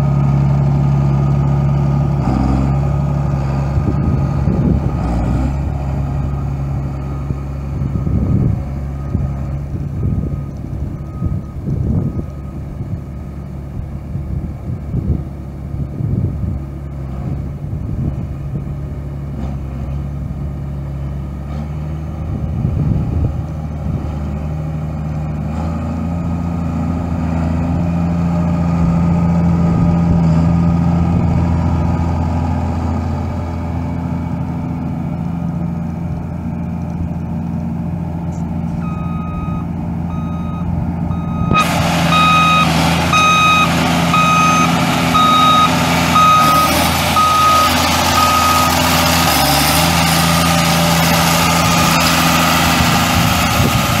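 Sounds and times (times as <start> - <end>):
diesel engine running: 0.0 - 54.0
electronic warning alarm beeping: 38.8 - 48.8.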